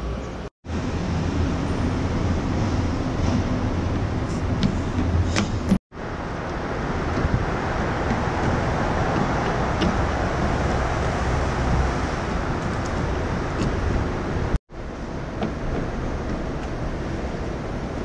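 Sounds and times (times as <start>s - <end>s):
city traffic noise: 0.0s - 18.0s
wind on the microphone: 0.9s - 14.6s.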